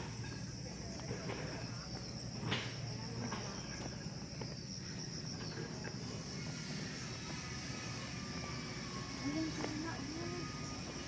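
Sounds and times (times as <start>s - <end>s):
high-pitched insect chorus: 0.0s - 11.0s
footsteps on asphalt: 0.9s - 5.5s, 8.4s - 11.0s.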